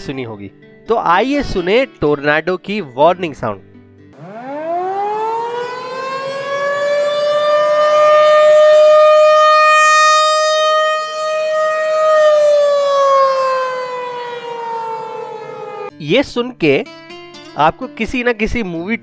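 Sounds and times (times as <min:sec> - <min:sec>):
rotating warning siren wailing: 0:04.2 - 0:15.9.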